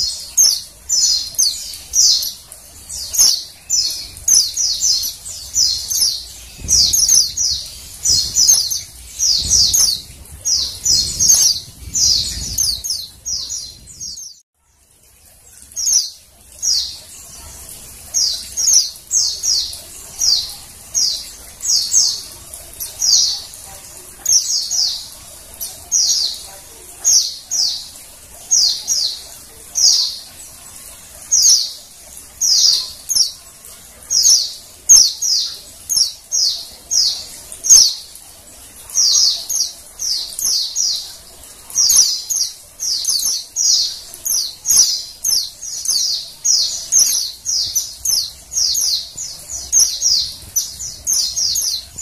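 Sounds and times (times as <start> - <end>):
bird chirping: 0.0 - 14.4, 38.8 - 52.0.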